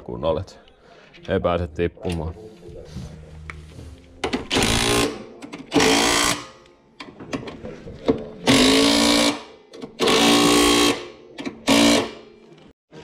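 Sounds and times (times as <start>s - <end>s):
cordless driver running in bursts: 8.5s - 9.4s, 10.0s - 11.0s, 11.7s - 12.1s.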